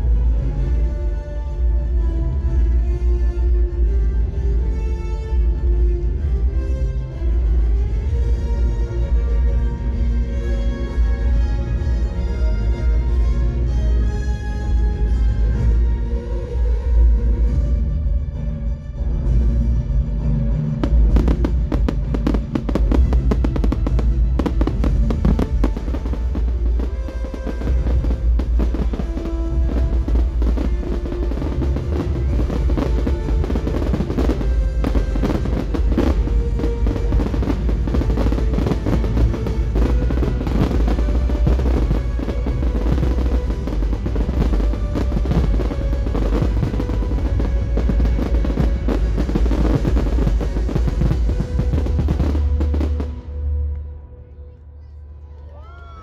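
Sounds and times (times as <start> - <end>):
deep rumble: 0.0 - 55.3
fireworks bangs and crackles: 20.8 - 53.6.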